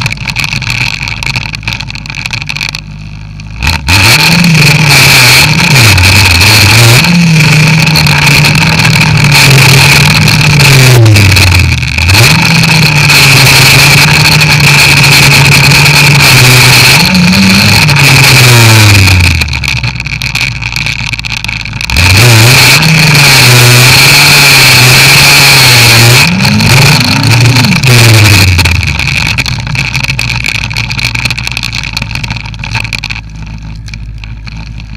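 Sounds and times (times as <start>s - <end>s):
snowmobile engine running: 0.0s - 34.9s.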